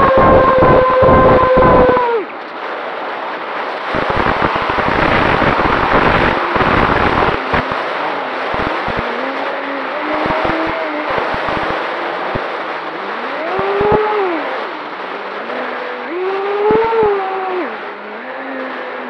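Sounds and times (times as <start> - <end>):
wind buffeting camera: 0.0 - 19.0
electric motor and propeller whining: 11.8 - 19.0.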